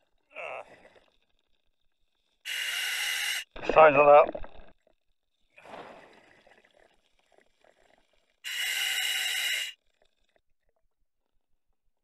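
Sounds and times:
scuba regulator breath hiss: 2.5 - 3.6, 8.5 - 9.8.

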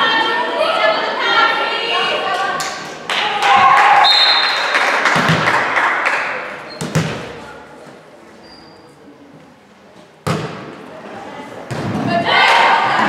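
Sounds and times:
voices and shouting: 0.0 - 4.8, 12.0 - 13.0
hand slapping volleyball: 5.0 - 5.9.

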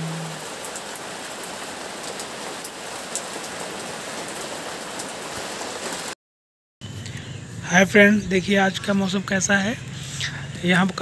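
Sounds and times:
steady rain falling: 0.0 - 6.2.

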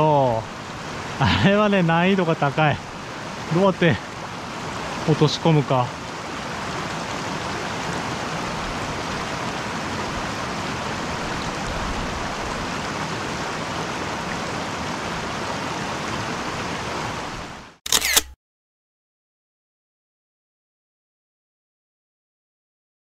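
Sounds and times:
stream running over rocks: 0.0 - 17.8.

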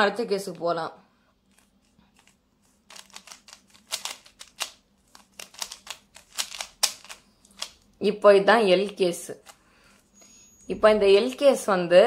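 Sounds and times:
puzzle cube plastic clicks: 1.5 - 7.9.

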